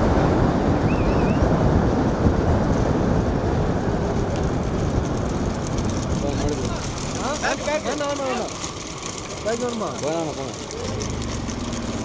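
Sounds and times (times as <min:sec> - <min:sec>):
vehicle road and engine noise: 0:00.0 - 0:12.0
wind buffeting microphone: 0:00.0 - 0:12.0.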